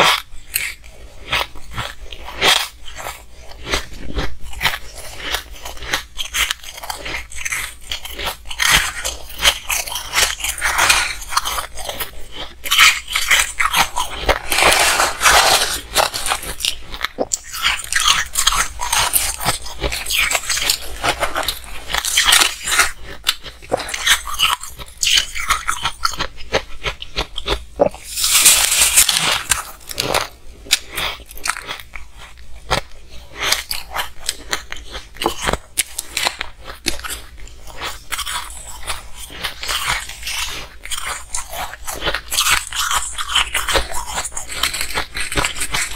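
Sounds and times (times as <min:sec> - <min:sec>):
crunching and chewing shaved ice: 0:00.0 - 0:45.9
metal spoon scraping ice: 0:12.9 - 0:16.7, 0:28.1 - 0:29.8.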